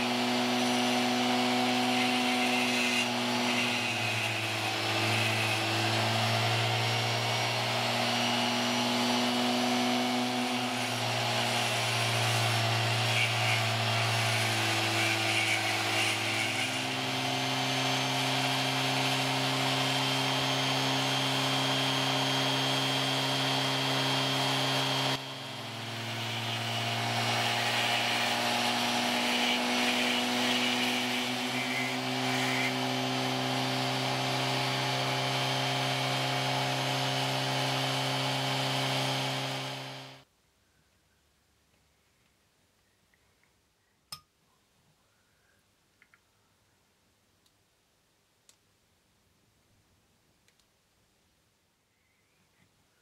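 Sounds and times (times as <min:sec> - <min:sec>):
rotary tool grinding slate: 0:00.0 - 0:40.2.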